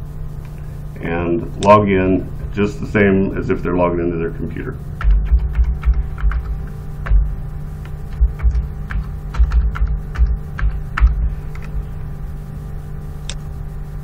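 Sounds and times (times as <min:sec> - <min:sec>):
low electrical hum: 0:00.0 - 0:14.0
keyboard keys clicking: 0:05.0 - 0:07.2, 0:07.8 - 0:11.7.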